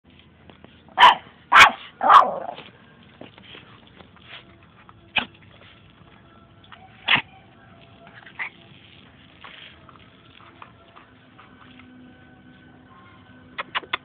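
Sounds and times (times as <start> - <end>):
small dog barking: 1.0 - 2.6, 7.0 - 7.3.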